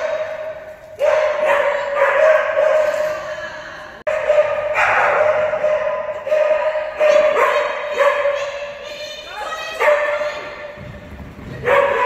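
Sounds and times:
dog barking excitedly: 1.0 - 3.0, 4.1 - 8.4, 9.8 - 10.2, 11.6 - 12.0.

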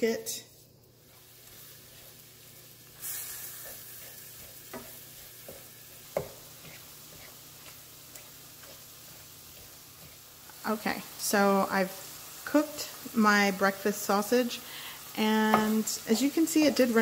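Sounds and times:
sausage sizzling in pan: 0.0 - 17.0
wooden spoon knocking pan: 4.7 - 6.4, 15.4 - 15.9.

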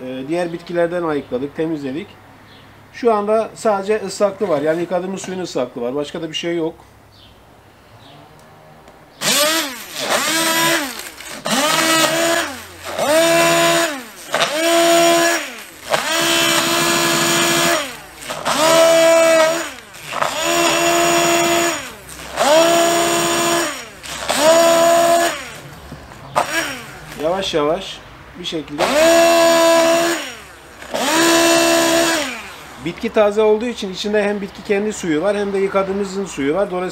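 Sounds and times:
immersion blender whining: 9.2 - 27.3, 28.8 - 32.9.

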